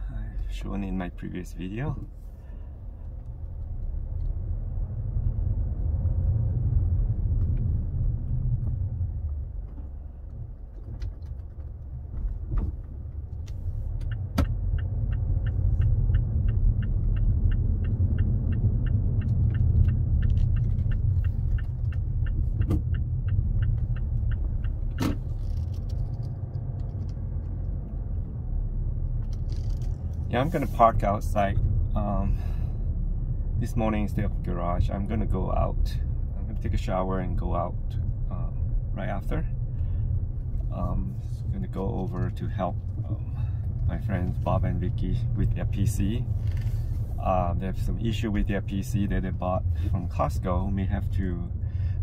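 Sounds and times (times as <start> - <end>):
car engine and tyres rumbling: 0.0 - 52.0
turn signal clicking: 7.0 - 28.4.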